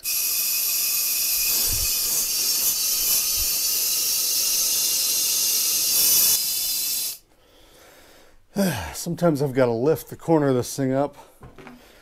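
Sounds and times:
compressed air hissing into tire: 0:00.0 - 0:07.2.

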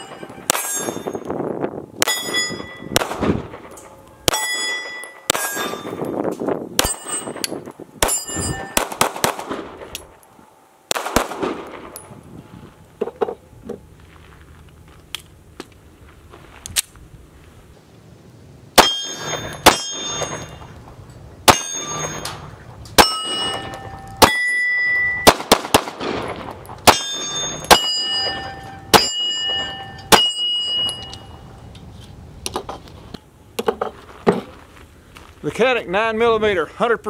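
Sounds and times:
bullets ringing steel targets: 0:00.0 - 0:01.3, 0:02.0 - 0:06.2, 0:06.8 - 0:10.1, 0:18.8 - 0:20.7, 0:21.4 - 0:31.5
pistol shots: 0:02.0 - 0:05.9, 0:06.8 - 0:07.4, 0:08.0 - 0:10.0, 0:10.9 - 0:12.0, 0:18.8 - 0:20.5, 0:25.2 - 0:30.5.

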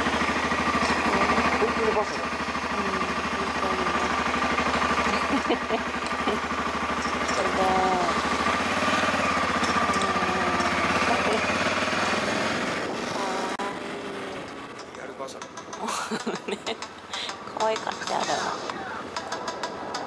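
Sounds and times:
motorcycle engine running: 0:00.0 - 0:20.0
faint voices: 0:17.2 - 0:19.5.

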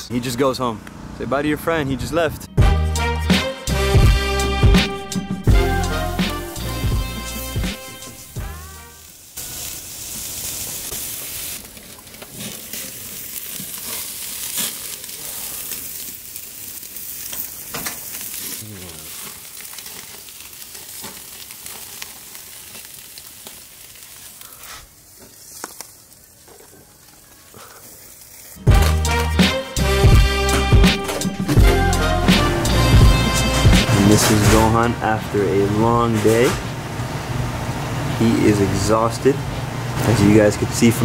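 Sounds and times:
steaks sizzling on a grill: 0:05.6 - 0:30.8.

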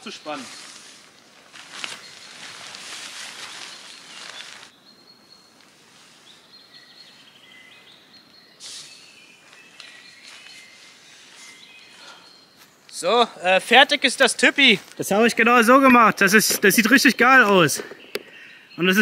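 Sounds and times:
tarp fabric rustling: 0:00.0 - 0:04.7
small birds chirping and singing: 0:00.0 - 0:19.0.

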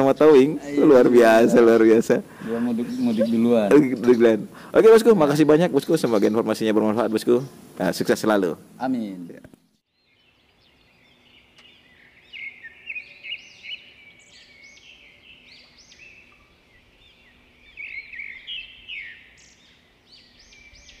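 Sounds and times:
faint steady hum: 0:00.0 - 0:09.7
small birds chirping: 0:00.0 - 0:21.0.

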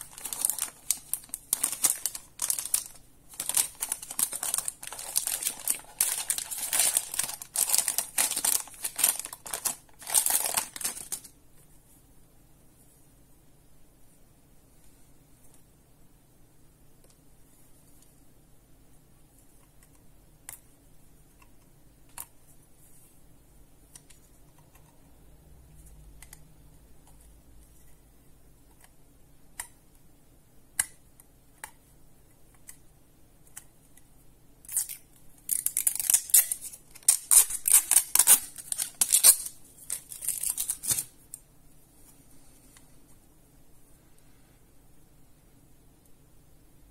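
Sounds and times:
crisp rustling and scraping: 0:00.0 - 0:11.4.

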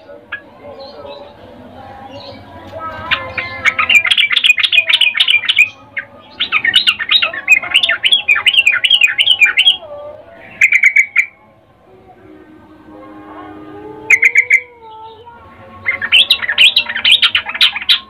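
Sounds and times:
bulbul chattering calls: 0:02.1 - 0:11.4, 0:14.0 - 0:15.2, 0:15.8 - 0:18.0.

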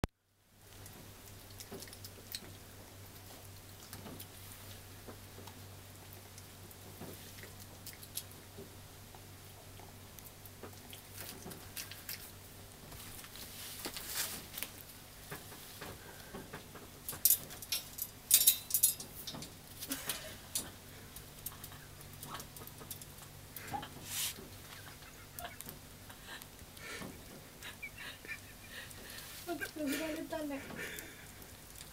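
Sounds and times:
clicks and rattles: 0:16.7 - 0:23.3.

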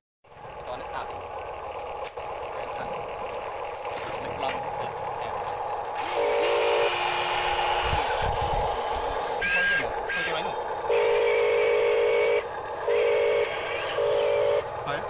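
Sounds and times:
tracks crawling over dirt: 0:00.7 - 0:06.0
electric motors whining: 0:01.1 - 0:15.0
buzzing tone: 0:06.0 - 0:08.2, 0:09.4 - 0:14.7.

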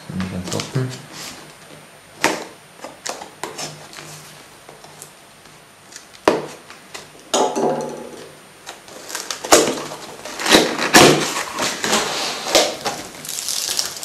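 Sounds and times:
cardboard scraping: 0:08.9 - 0:13.2.

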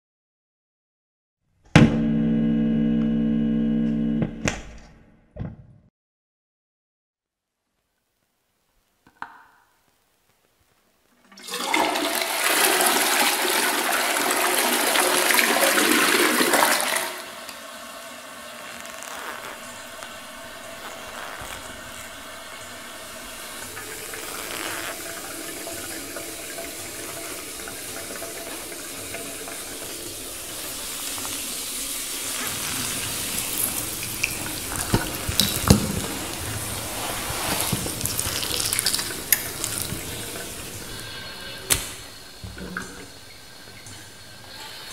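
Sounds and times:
toilet flushing water: 0:11.2 - 0:44.9
steady flow of water: 0:14.0 - 0:44.9.

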